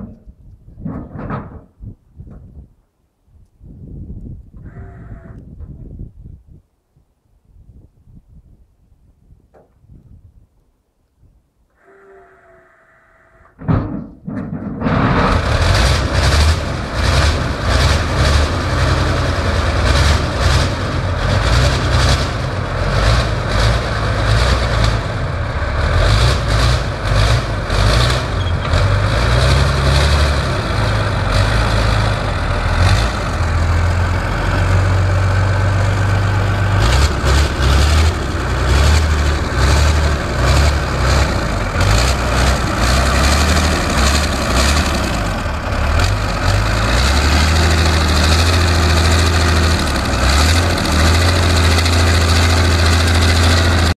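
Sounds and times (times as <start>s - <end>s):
diesel engine cold starting: 14.4s - 53.9s.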